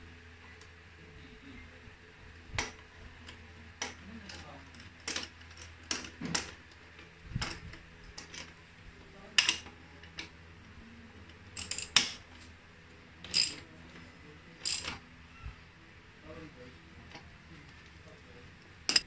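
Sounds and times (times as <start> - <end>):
metal bolt parts clicking: 11.6 - 12.2, 13.2 - 13.6, 14.6 - 15.0.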